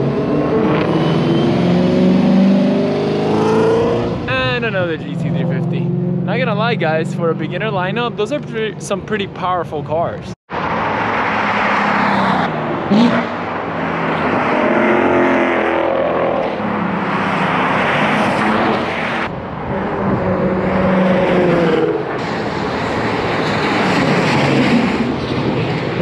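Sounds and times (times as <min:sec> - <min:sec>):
sports car engines passing: 0:00.0 - 0:26.0.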